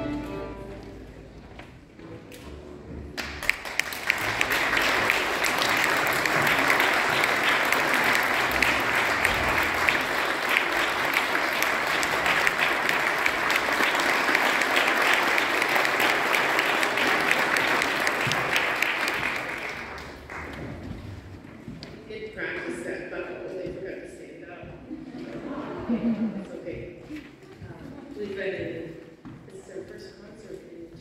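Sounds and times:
audience applauding: 3.2 - 20.8.

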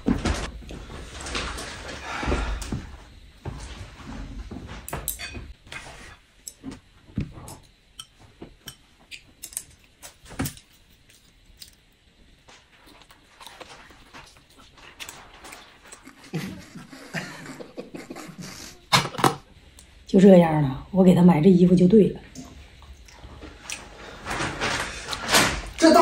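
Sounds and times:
chopsticks tapping plates: 7.5 - 9.8
chewing: 22.4 - 23.9.

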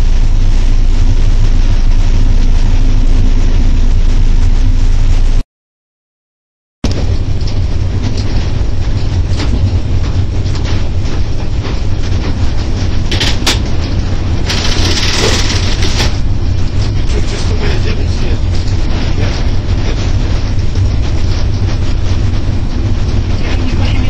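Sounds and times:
locomotive running gear rumble: 0.0 - 5.4, 6.8 - 24.0
wheel-on-rail clatter: 6.9 - 24.0.

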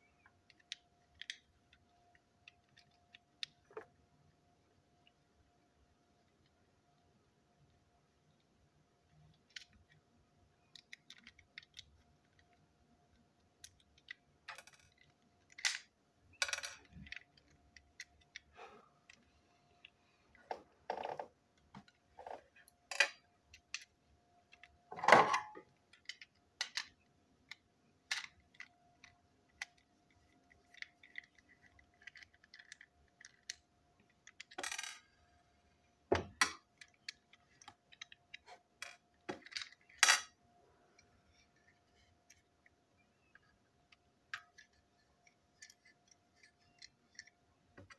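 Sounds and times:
faint steady hum: 0.0 - 47.9
small plastic parts clicking: 0.1 - 4.0, 6.2 - 24.8, 25.6 - 40.4, 41.0 - 47.9
parts set down on table: 24.9 - 25.6.

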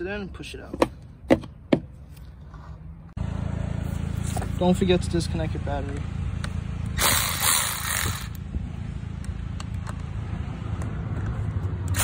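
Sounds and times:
steady low rumble: 3.1 - 11.8
electric ratchet whirring: 6.8 - 8.4.

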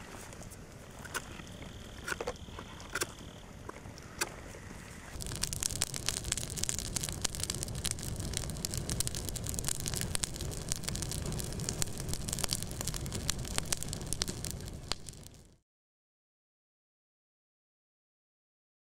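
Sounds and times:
low rumble of burning: 0.0 - 15.6
campfire crackling and popping: 0.2 - 4.4, 5.1 - 15.6.

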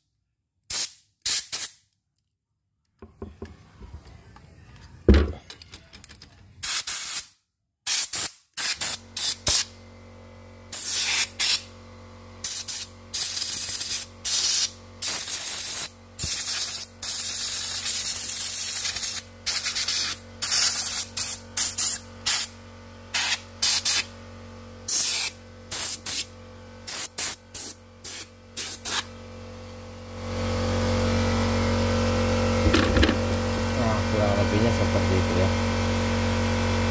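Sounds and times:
steady low hum: 31.7 - 35.5.

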